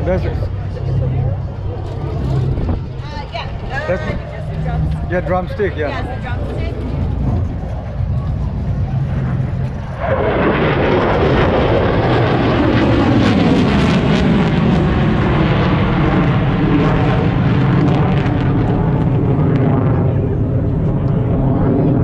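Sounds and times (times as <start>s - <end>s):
jet aircraft flying past: 0.0s - 22.0s.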